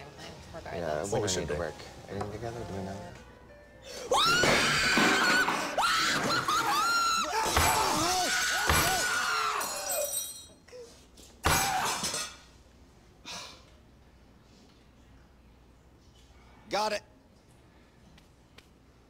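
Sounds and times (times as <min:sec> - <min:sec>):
people screaming in fright: 0:04.1 - 0:10.1.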